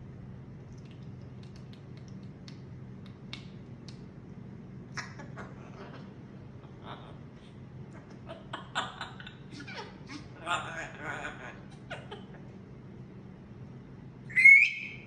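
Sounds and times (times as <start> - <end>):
steady low hum: 0.0 - 15.0
parrot clicking: 0.8 - 4.1
parrot vocal sounds: 4.9 - 12.6, 14.3 - 15.0.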